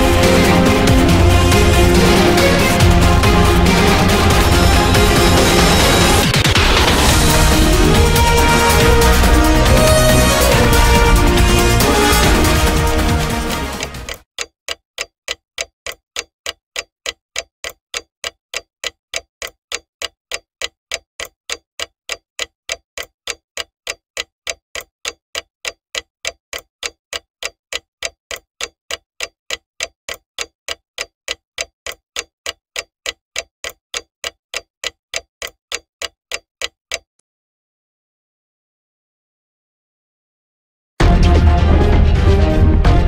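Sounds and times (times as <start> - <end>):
clock ticking: 0.0 - 37.2.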